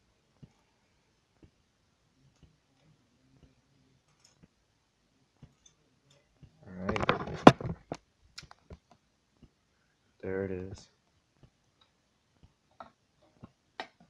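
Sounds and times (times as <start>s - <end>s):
faint clock ticks: 0.1s - 4.7s, 8.4s - 14.0s
rustling and knocking: 6.4s - 9.5s.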